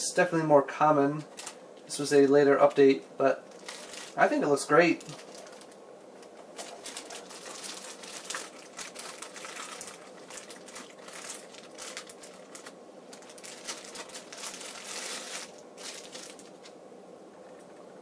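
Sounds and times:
plastic bag crinkling: 1.2 - 16.8.

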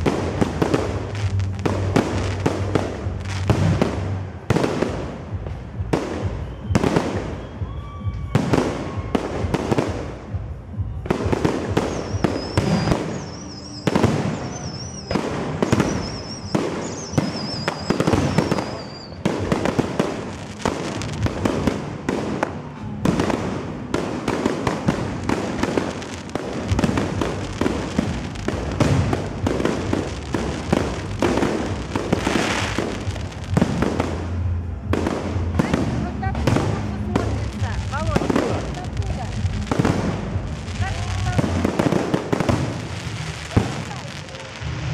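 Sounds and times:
firework bursts and crackle: 0.0 - 44.9
wavering high whistle: 6.3 - 9.2, 11.9 - 19.2.

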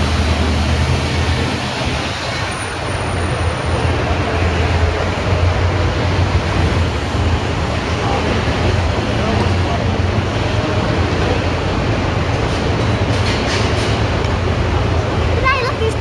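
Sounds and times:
road traffic engine rumble: 0.0 - 16.0.

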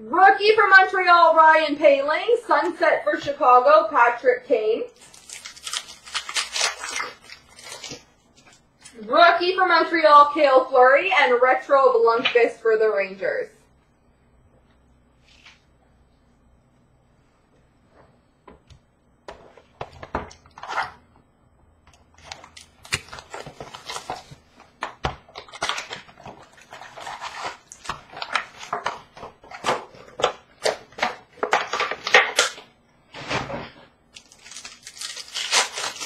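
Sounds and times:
wrappers crinkling and tearing: 5.0 - 8.6, 22.2 - 32.6, 34.1 - 36.0.

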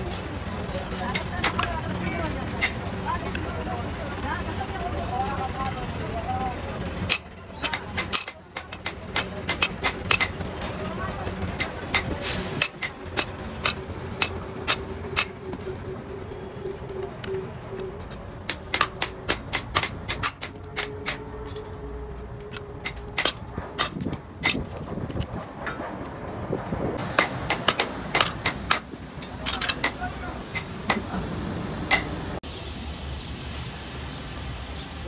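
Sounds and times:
hammer tapping metal rivets: 7.1 - 10.8, 11.6 - 15.8, 18.4 - 21.8, 22.4 - 25.0, 27.0 - 31.1.

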